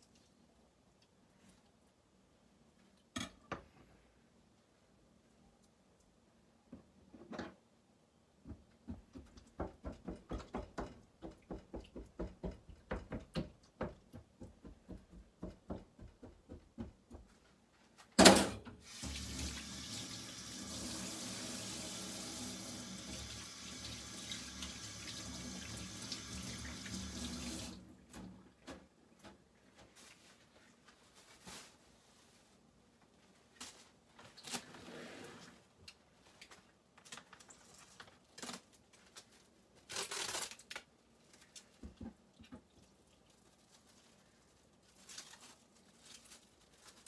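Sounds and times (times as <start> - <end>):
tap water running into a steel sink: 18.8 - 27.8.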